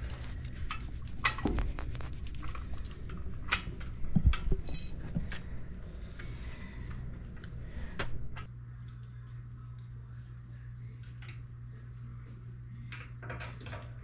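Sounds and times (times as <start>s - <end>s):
ringing metal clink: 4.6s - 5.0s
metal tools clinking: 4.6s - 5.4s.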